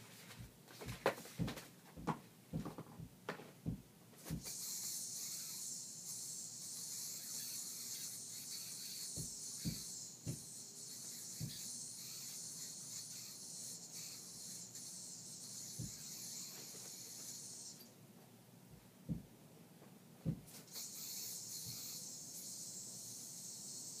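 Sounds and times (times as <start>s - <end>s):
dull thumps: 0.4s - 4.5s, 9.1s - 10.5s, 11.4s - 11.6s, 18.7s - 19.3s, 20.2s - 20.6s
yo-yo whirring on string: 4.4s - 17.9s.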